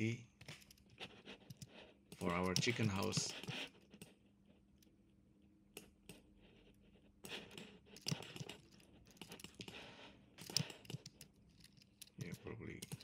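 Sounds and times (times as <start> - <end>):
computer keyboard and mouse clicking: 0.4 - 4.2, 7.5 - 13.0.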